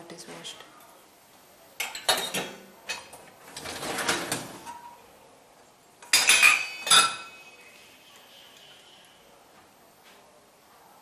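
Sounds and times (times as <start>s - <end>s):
steel vessels clattering: 6.0s - 7.6s.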